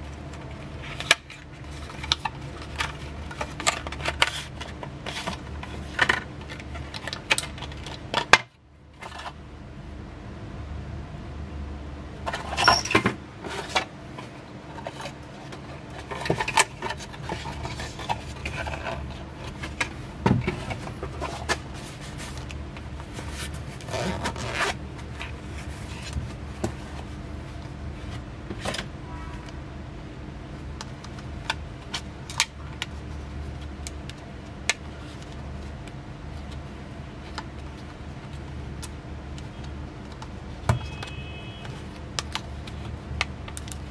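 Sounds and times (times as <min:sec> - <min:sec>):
steady low hum: 0:00.0 - 0:43.9
hands handling cardboard packaging: 0:00.3 - 0:08.4, 0:13.5 - 0:28.8.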